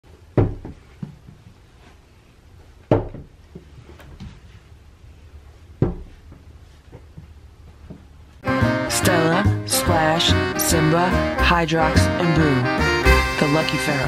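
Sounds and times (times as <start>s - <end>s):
heavy dull thumps: 0.3s - 1.6s, 2.9s - 4.4s, 5.7s - 8.8s.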